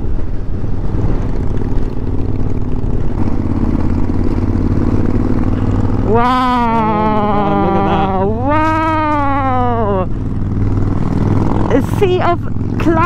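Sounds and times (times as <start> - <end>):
motorcycle engine running: 0.0 - 13.0
person exclaiming: 6.0 - 10.1.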